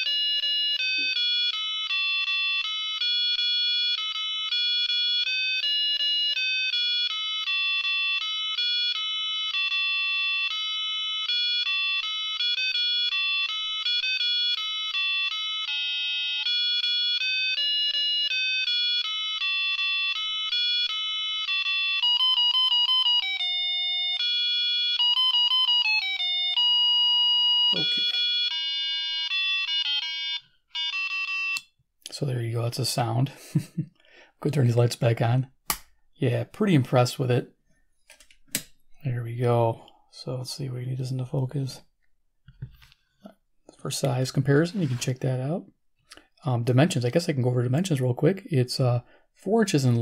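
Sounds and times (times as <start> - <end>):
beeping electronic tune: 27.7 - 29.3.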